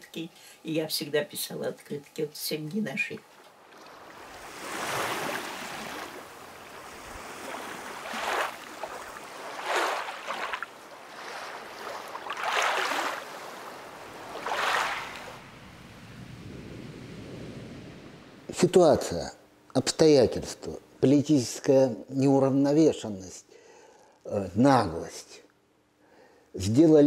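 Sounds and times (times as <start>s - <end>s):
waves washing on sandy shore: 3.6s - 18.0s.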